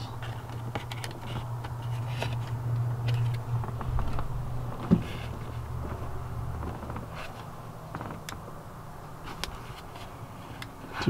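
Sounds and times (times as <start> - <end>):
steady low hum: 0.0 - 11.0
plastic clicks and scrapes: 0.2 - 4.3.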